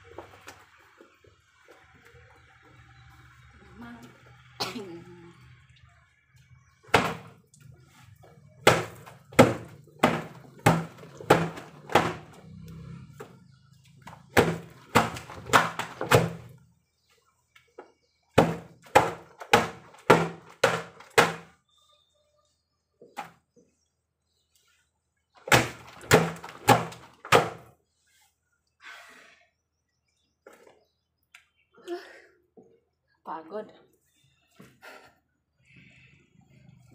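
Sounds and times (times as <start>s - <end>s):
wet laundry thwacking on stone: 6.9s - 7.3s, 8.6s - 12.4s, 14.0s - 16.5s, 18.4s - 21.5s, 25.5s - 27.7s.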